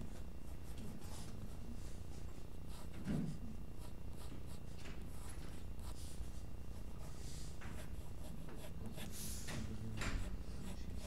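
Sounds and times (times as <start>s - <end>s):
pencil scratching on paper: 0.0s - 1.5s, 2.1s - 9.5s, 10.1s - 11.0s.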